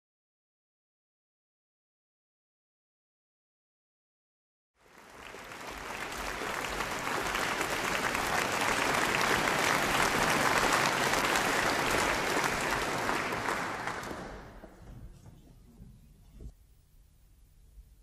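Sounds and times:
audience applauding: 4.8s - 14.8s.

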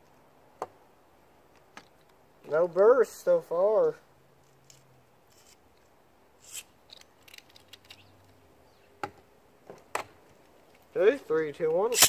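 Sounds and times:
plastic toys clicking and rustling: 6.5s - 8.4s, 11.6s - 12.0s.

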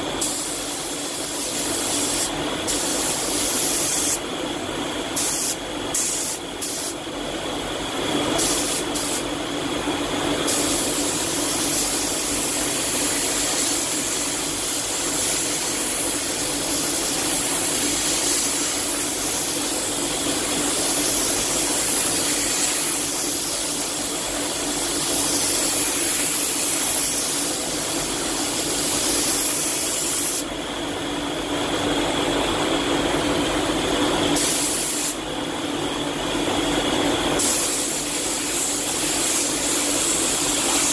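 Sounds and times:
spray gun hissing: 0.2s - 4.2s, 5.1s - 7.0s, 8.4s - 9.3s, 10.4s - 30.5s, 34.4s - 35.2s, 37.4s - 40.9s.

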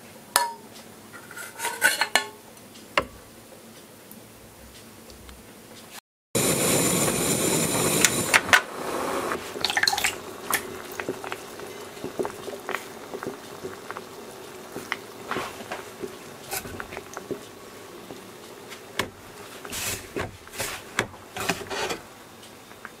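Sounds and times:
stew bubbling in a pot: 6.4s - 23.0s.

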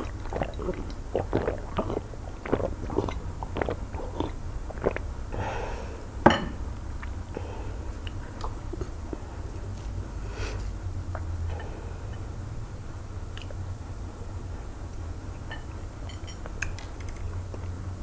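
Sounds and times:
swallowing clicks: 0.0s - 5.2s, 6.8s - 7.4s, 8.0s - 9.3s, 11.1s - 11.7s, 13.3s - 13.6s
person gulping water: 0.0s - 9.8s, 11.1s - 11.8s
faint mouth sounds: 0.0s - 12.6s, 13.2s - 15.8s
breath out: 5.3s - 6.2s
glass knocking on surface: 6.3s - 6.6s.

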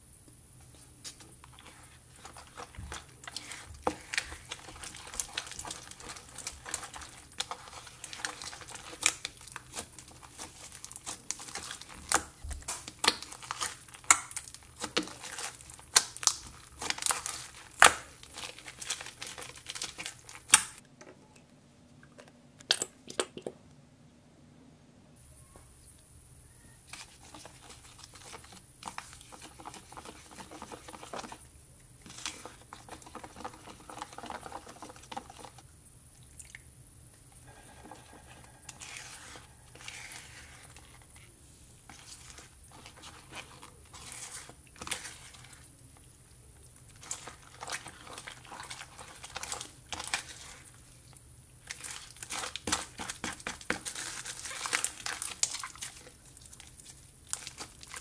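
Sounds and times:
sticky slime squishing: 0.5s - 20.8s, 26.5s - 58.0s
spatula scraping plastic cup: 27.0s - 31.4s, 37.4s - 41.3s.

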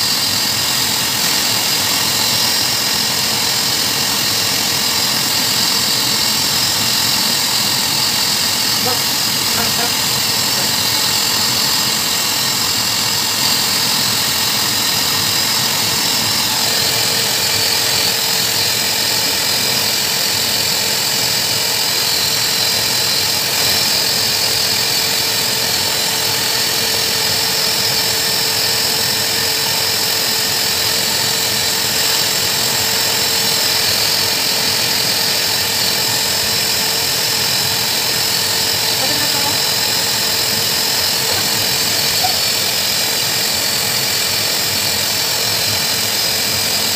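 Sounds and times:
blow dryer motor whine: 0.0s - 46.9s
steady tone: 8.3s - 11.7s.

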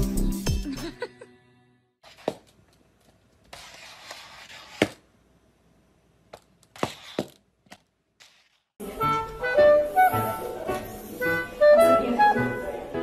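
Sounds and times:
clarinet music: 8.8s - 13.0s.

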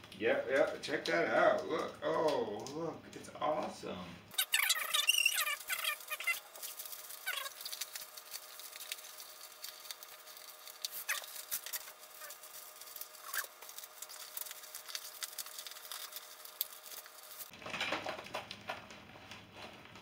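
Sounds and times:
loud crackles: 4.3s - 18.8s
plastic packaging crinkling: 4.3s - 20.0s.

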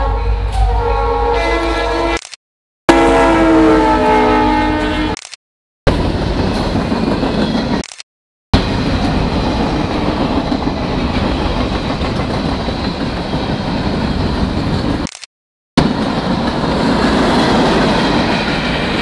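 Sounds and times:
freight train wheels rumbling: 5.9s - 7.8s, 8.6s - 15.1s, 15.8s - 19.0s.

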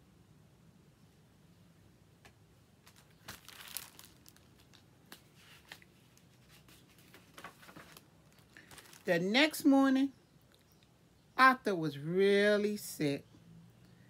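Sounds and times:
faint ticks from handling book: 2.8s - 9.0s
paper page rustle: 2.8s - 9.2s.

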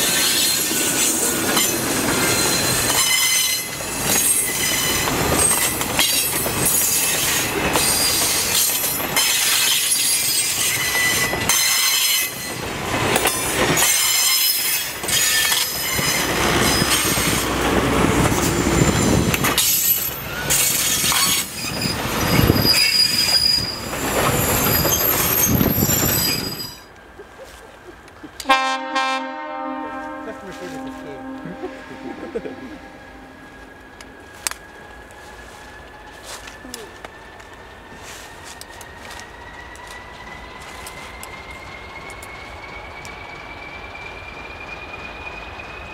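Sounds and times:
train horn: 28.4s - 33.8s.

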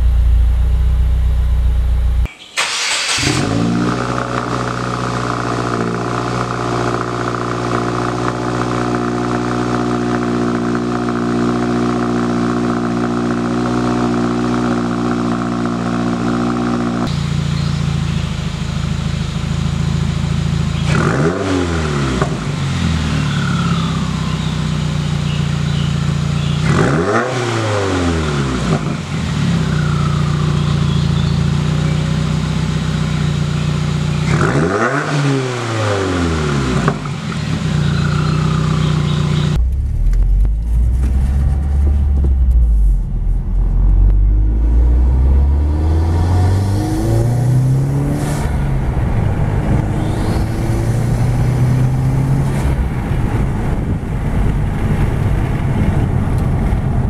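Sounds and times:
car engine idling and revving: 0.0s - 57.0s.

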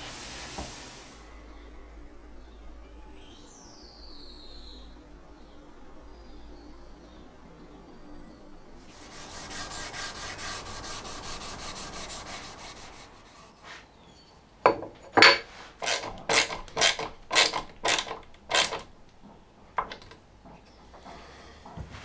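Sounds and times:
fine scraping on wood: 8.8s - 14.2s, 15.4s - 16.1s, 20.8s - 22.0s
sharp rasping strokes on wood: 8.9s - 13.8s, 15.7s - 18.8s.

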